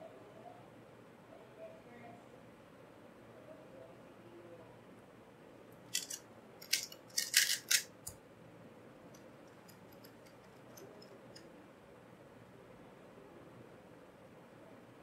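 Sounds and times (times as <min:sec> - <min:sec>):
puzzle cube plastic clicks: 0:05.9 - 0:08.1.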